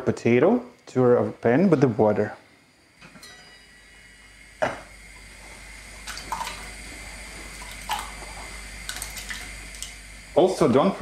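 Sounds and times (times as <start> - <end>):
metal pot lid clink: 3.1 - 3.7
potatoes plopping into water: 6.0 - 6.7, 7.6 - 10.0.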